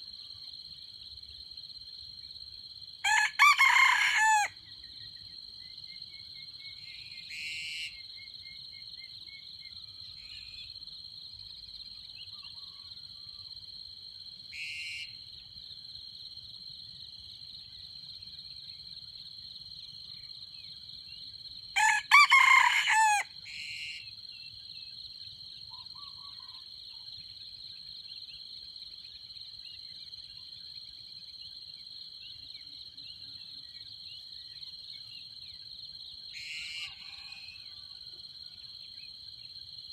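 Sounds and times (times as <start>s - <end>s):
insects droning: 0.0s - 39.9s
rooster crowing: 3.0s - 4.6s, 21.8s - 23.3s, 36.4s - 38.0s.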